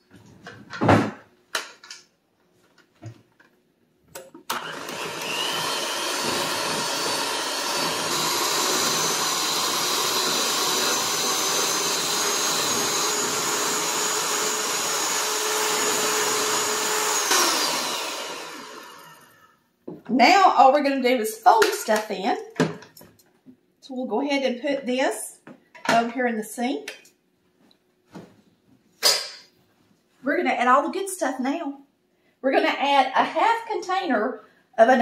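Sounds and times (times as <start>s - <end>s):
electric hand mixer whirring: 4.5s - 19.5s.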